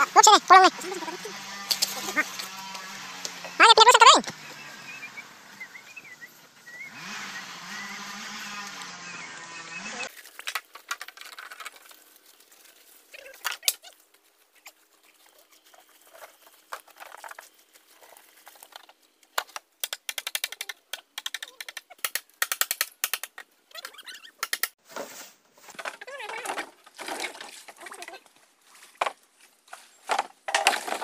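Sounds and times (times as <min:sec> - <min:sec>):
bamboo poles knocking together: 0:10.1 - 0:12.0, 0:18.6 - 0:23.5, 0:24.4 - 0:27.9, 0:28.9 - 0:31.0.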